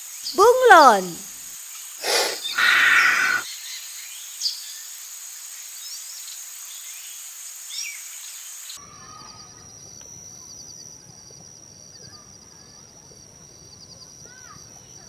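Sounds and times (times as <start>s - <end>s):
steady high background hiss: 0.0s - 8.8s
loud breathy hiss: 1.8s - 3.5s
faint bird chirps: 2.0s - 3.7s.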